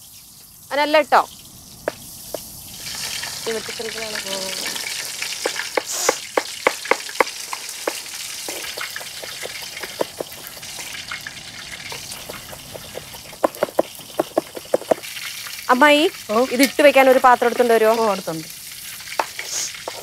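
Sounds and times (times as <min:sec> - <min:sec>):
oil popping and crackling: 0:00.0 - 0:20.0
prawns deep-frying in oil: 0:00.0 - 0:20.0.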